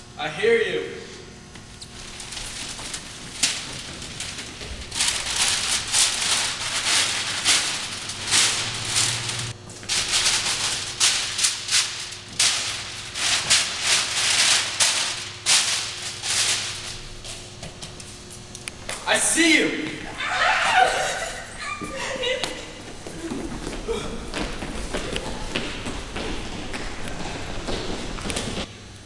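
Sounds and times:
dry rustling and crunching: 1.8s - 17.3s.

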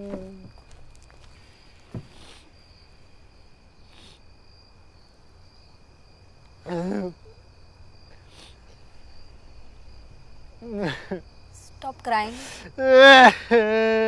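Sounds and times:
crickets chirping: 0.0s - 14.0s
soft thump: 1.9s - 2.2s.

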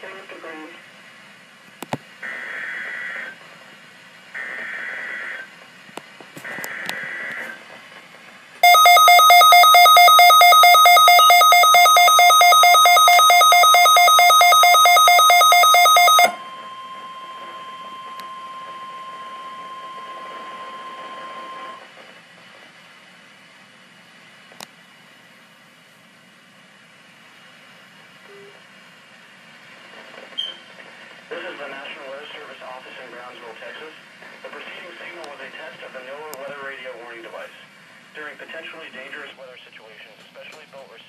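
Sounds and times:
harsh pulsing alarm tone: 8.6s - 21.8s
steady single-pitch alert tone: 8.6s - 21.8s.

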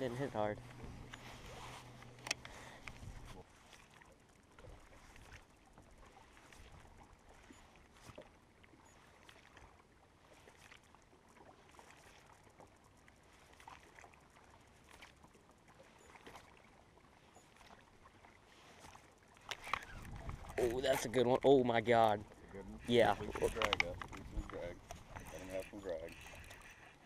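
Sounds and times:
small waves lapping against boat: 0.0s - 27.0s
light clicks: 1.9s - 3.0s, 23.4s - 27.0s.

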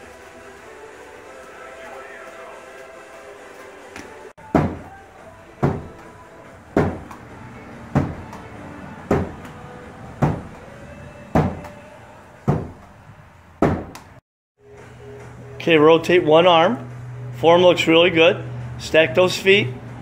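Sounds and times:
ball knocking on wooden wall: 4.5s - 4.9s, 5.6s - 6.1s, 6.8s - 7.2s, 8.0s - 8.5s, 9.1s - 9.6s, 10.2s - 10.6s, 11.4s - 11.8s, 12.5s - 12.9s, 13.6s - 14.1s.

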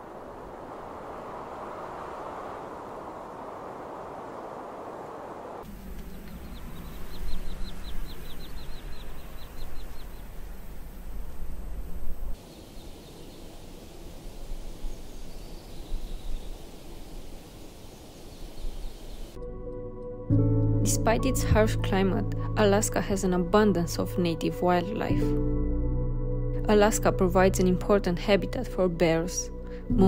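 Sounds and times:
steady hiss: 0.0s - 19.4s
faint bird chirps: 5.7s - 19.4s
small bird trilling: 6.0s - 10.3s.

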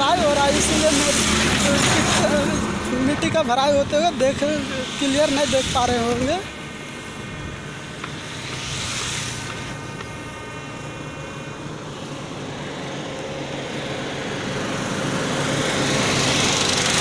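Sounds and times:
vehicle engine drone: 0.0s - 17.0s.

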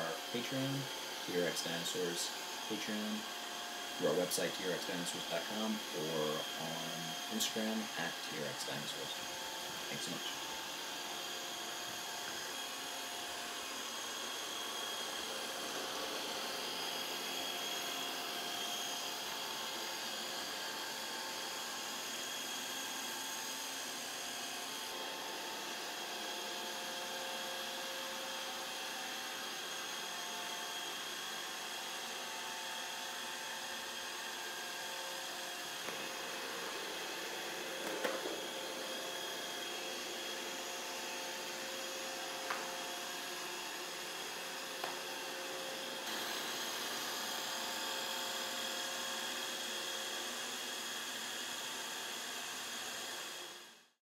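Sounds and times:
robot vacuum whirring: 0.0s - 53.8s.

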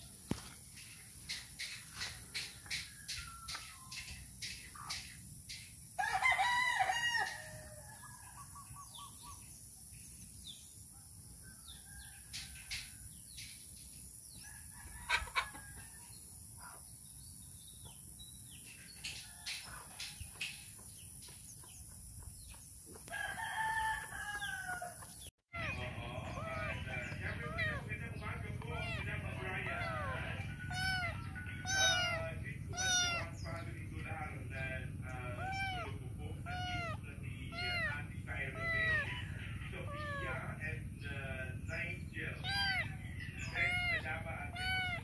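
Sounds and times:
rooster crowing: 6.0s - 8.5s, 14.4s - 16.2s, 23.0s - 27.9s, 28.7s - 33.4s, 37.7s - 40.6s
chicken clucks: 15.0s - 15.8s.

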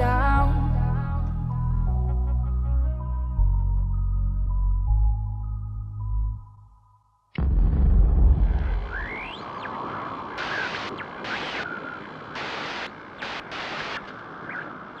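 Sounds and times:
deep bass boom: 7.4s - 9.3s
bursts of bright static: 7.4s - 15.0s
static hiss: 8.8s - 15.0s.

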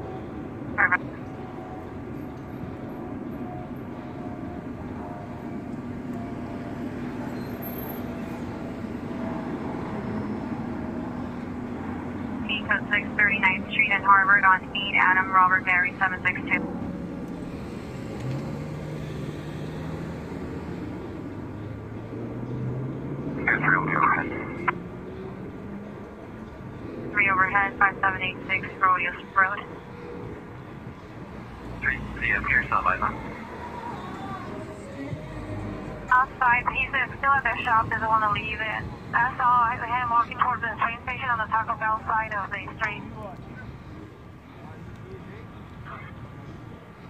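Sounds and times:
car approaching: 0.0s - 47.0s
street traffic noise: 0.0s - 47.0s
tinny radio voice: 0.8s - 1.0s
car engine hum: 0.8s - 40.5s.

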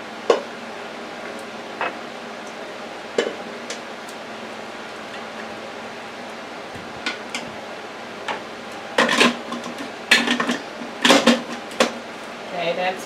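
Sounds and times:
plastic bowl clattering on motor base: 9.0s - 12.0s.

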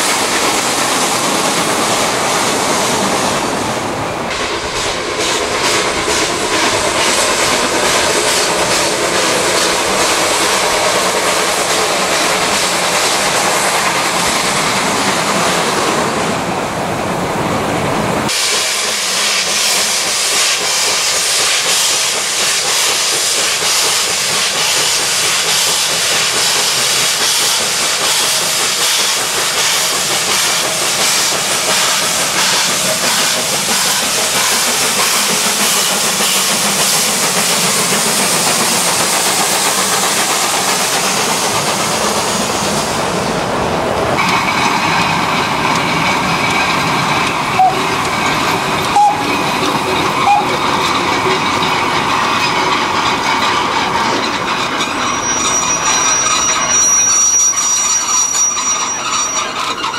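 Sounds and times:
steam locomotive hissing: 0.0s - 59.9s
wagons clacking and rumbling: 44.1s - 59.9s
high wheel squeal: 44.2s - 59.9s.

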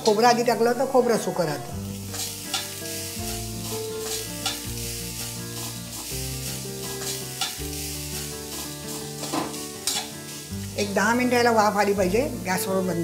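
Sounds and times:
soft background music: 0.0s - 13.0s
sugar sizzling: 0.0s - 13.0s
metal spatula scraping a pan: 5.2s - 10.4s.

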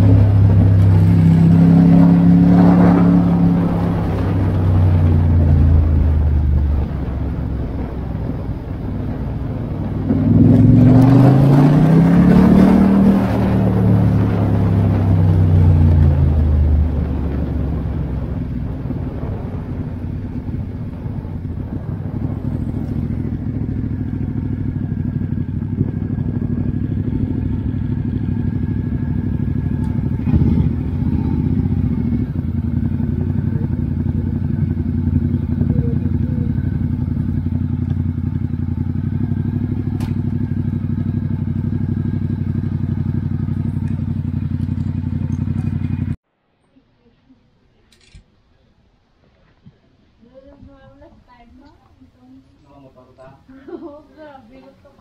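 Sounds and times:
motorcycle engine running: 0.0s - 46.2s.

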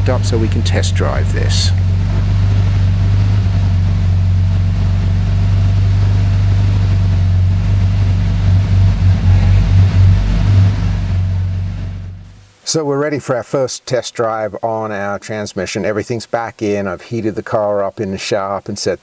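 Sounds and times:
car engine idling: 0.0s - 12.5s.

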